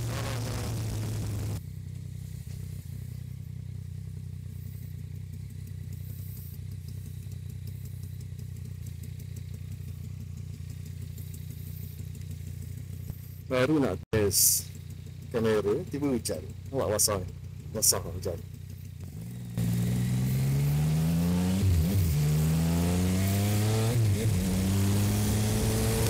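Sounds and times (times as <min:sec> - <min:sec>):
motorcycle engine idling: 0:00.0 - 0:26.0
faint ticks: 0:10.6 - 0:13.4.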